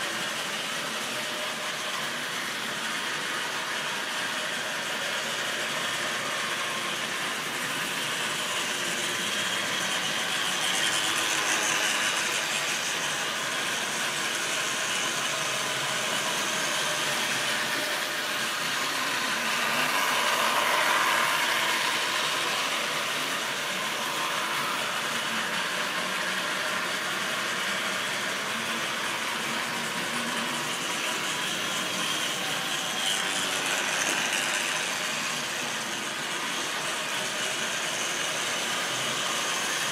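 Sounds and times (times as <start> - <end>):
model train motor whirring: 0.0 - 39.9.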